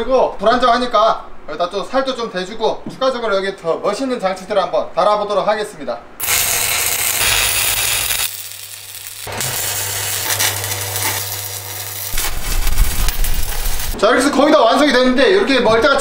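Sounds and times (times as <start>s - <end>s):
welding arc crackling and sizzling: 6.2s - 14.0s.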